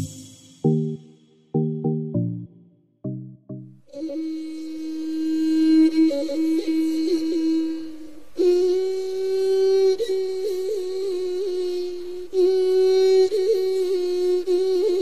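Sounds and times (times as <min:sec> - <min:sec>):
wordless melody of held notes: 0:00.0 - 0:03.8.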